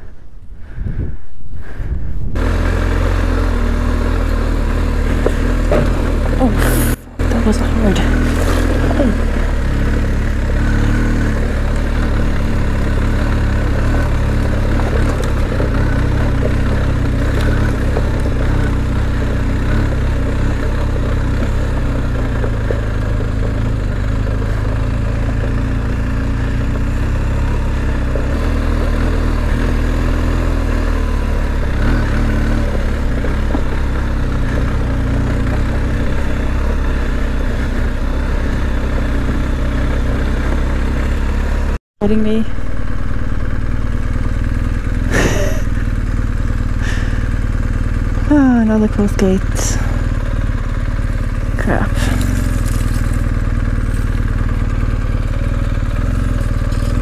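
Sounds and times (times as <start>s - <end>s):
motorcycle engine rumbling: 0.0s - 57.0s.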